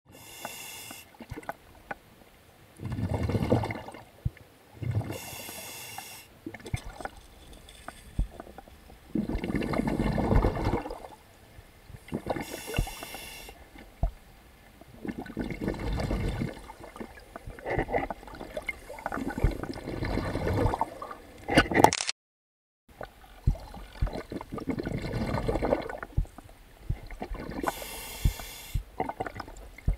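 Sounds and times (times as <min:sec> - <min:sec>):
water sloshing and bubbling: 0:00.1 - 0:22.0, 0:22.9 - 0:29.9.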